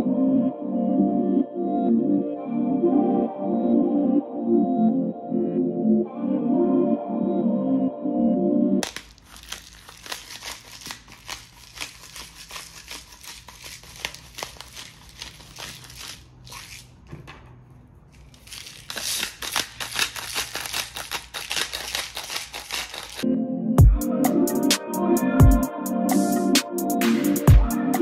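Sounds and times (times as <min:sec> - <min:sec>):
pepper grinder crackling: 0:08.8 - 0:17.0, 0:18.1 - 0:23.2.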